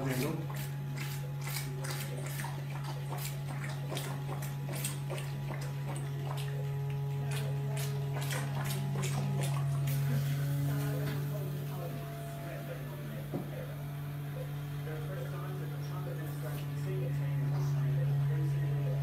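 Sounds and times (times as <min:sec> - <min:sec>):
suction machine hum: 0:00.0 - 0:19.0
wet clicks and slurps: 0:00.1 - 0:10.2.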